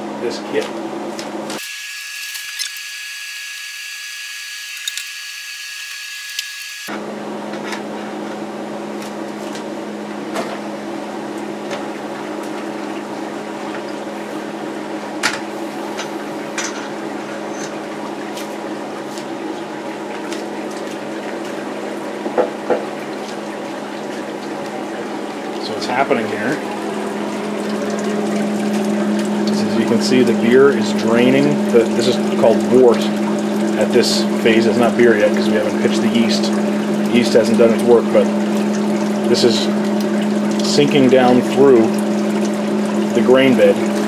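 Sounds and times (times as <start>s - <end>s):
steady hum: 6.1s - 44.0s
liquid trickling and splashing: 11.4s - 44.0s.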